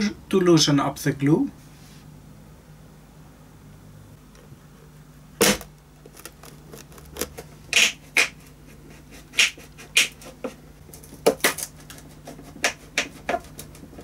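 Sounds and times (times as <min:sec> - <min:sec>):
wood and glue cracking: 0:05.4 - 0:07.4.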